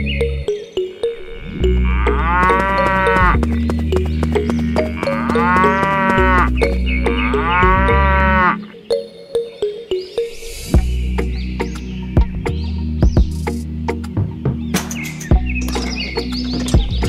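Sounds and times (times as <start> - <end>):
background music: 0.0 - 17.0
cows mooing: 1.2 - 3.5, 4.8 - 8.7.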